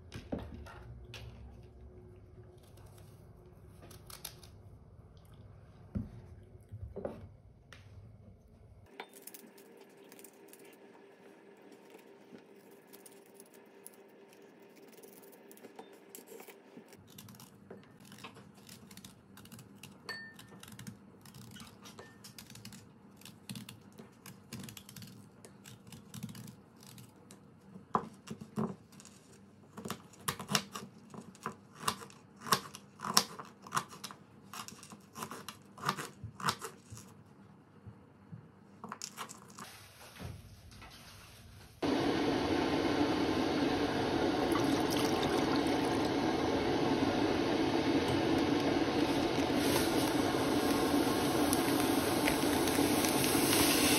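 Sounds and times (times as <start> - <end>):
fruit being peeled: 2.4 - 5.6, 8.9 - 37.4, 44.4 - 53.9.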